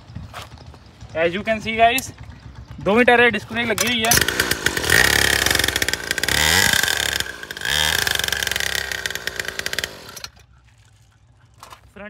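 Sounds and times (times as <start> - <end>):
two-stroke engine revving: 1.0 - 10.4.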